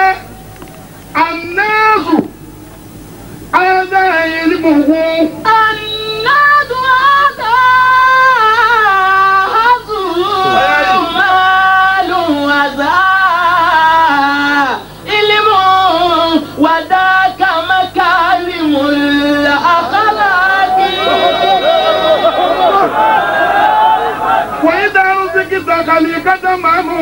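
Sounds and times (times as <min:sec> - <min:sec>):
man singing unaccompanied: 0:03.6 - 0:22.9.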